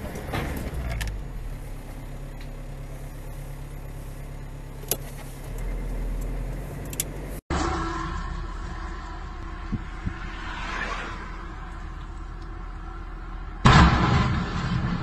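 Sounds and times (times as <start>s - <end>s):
car road and engine rumble: 0.0s - 15.0s
lorry passing: 7.5s - 13.7s.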